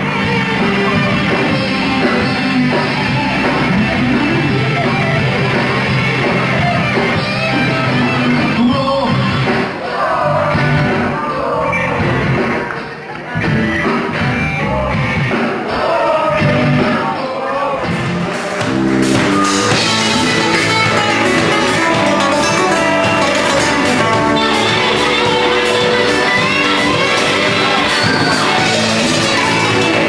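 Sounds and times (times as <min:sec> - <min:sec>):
live rock band playing: 0:00.0 - 0:30.0
man singing: 0:07.8 - 0:18.6.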